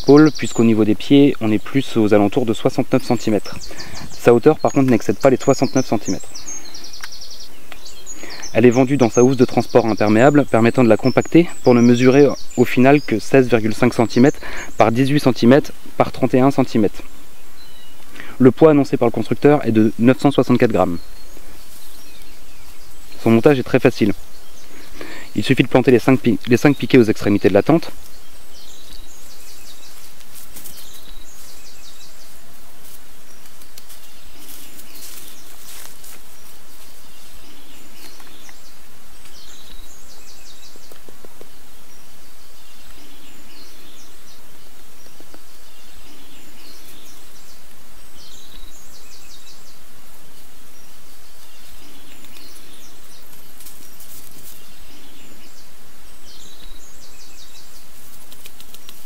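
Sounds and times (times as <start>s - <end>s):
bird singing high phrase: 0.0s - 58.1s.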